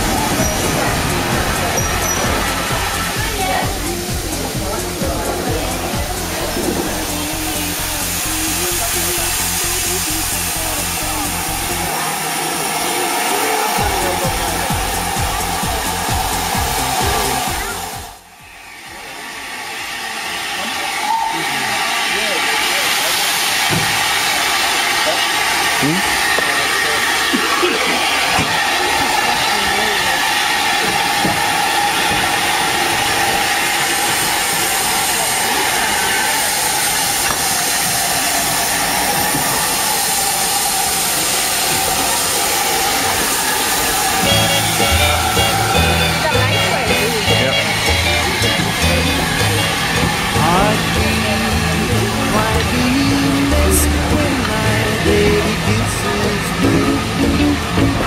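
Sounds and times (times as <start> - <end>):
music: 0.0 - 11.9, 13.7 - 18.6, 44.1 - 58.0
rhythmic low pulsing: 0.0 - 12.8, 13.7 - 18.4, 44.2 - 58.0
steam locomotive hissing: 0.0 - 58.0.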